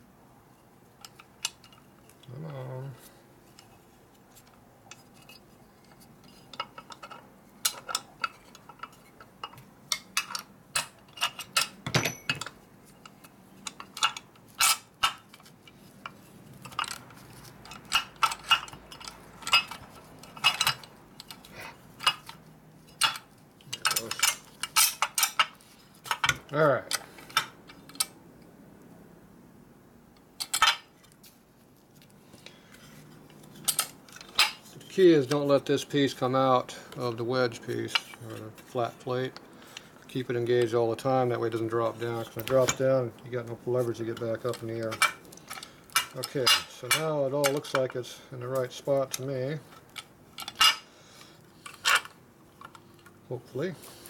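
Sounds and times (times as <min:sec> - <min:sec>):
steel parts clinking: 0:04.9 - 0:28.1, 0:30.4 - 0:31.0, 0:32.8 - 0:36.2, 0:36.9 - 0:50.9, 0:51.6 - 0:52.8.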